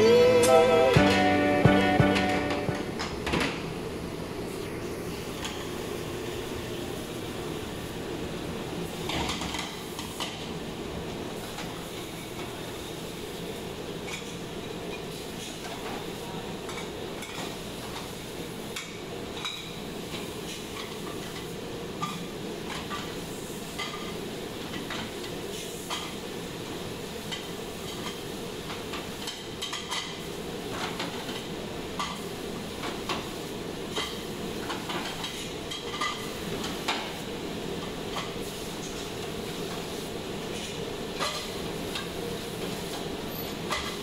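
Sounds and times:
steady machine hum: 0.0 - 8.9.

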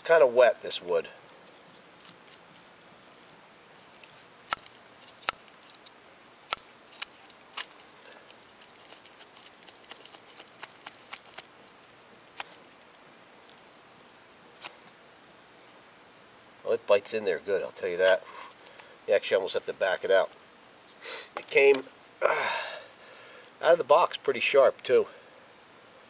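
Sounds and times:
knife shaving wood: 1.3 - 15.0.

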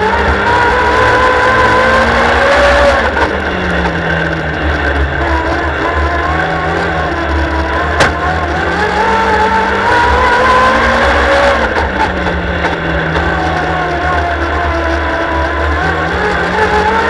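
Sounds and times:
racing car engine running hard: 0.0 - 17.0
sharp knock: 8.0 - 8.3.

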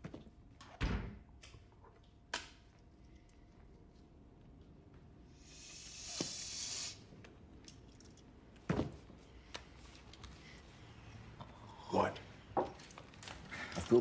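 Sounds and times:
short hiss: 5.4 - 7.0.

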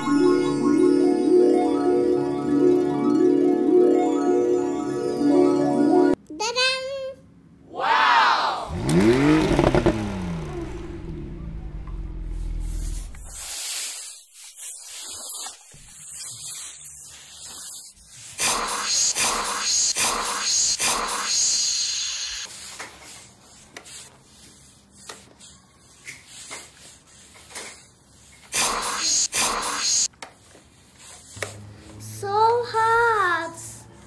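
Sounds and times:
toy steam iron hissing: 13.2 - 22.6, 28.5 - 30.1.

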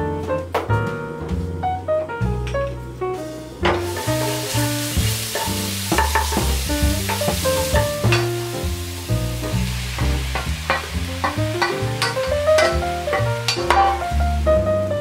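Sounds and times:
background music with bass: 0.0 - 15.0
garlic sizzling in oil: 3.2 - 15.0.

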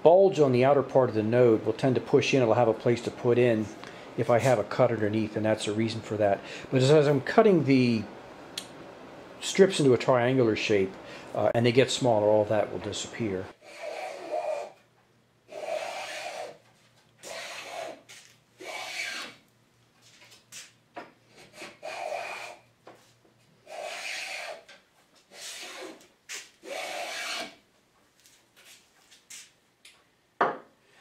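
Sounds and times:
block plane rasping on cane: 13.6 - 14.8, 15.5 - 16.6, 17.2 - 19.4, 21.4 - 22.6, 23.6 - 24.7, 25.3 - 27.6.

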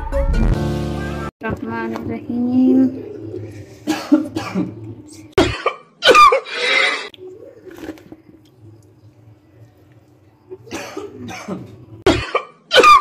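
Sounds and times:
person coughing: 3.8 - 4.8, 5.4 - 6.8, 10.7 - 13.0
throat clearing: 3.8 - 4.8.

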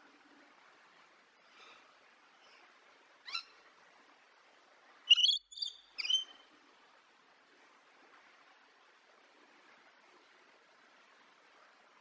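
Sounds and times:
faint steady hiss: 0.0 - 12.0
lorikeet sharp calls: 5.1 - 6.3.

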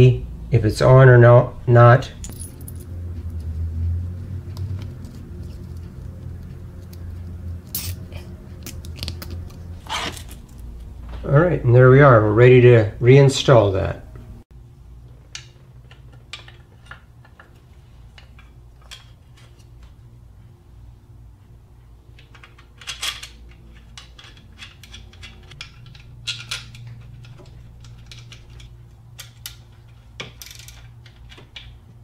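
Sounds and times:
tools clinking against metal: 2.2 - 3.0, 22.3 - 31.7.

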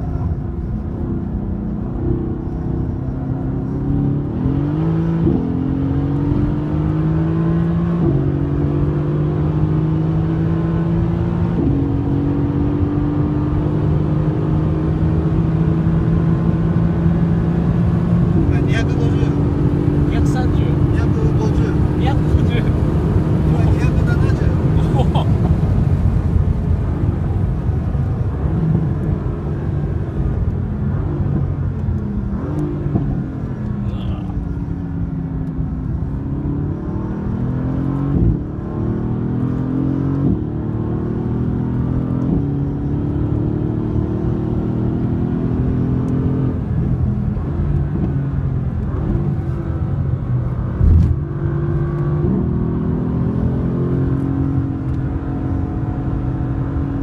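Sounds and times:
car engine revving: 0.0 - 57.0
short thumps: 50.8 - 51.2.

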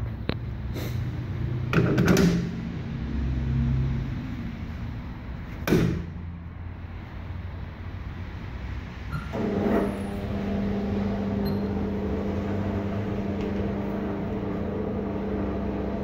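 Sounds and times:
steady low hum: 6.0 - 16.0.

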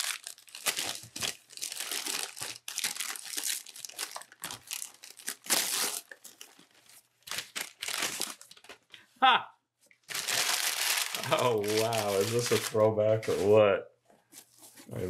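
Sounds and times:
tissue paper crinkling: 0.0 - 8.8, 10.1 - 13.6.

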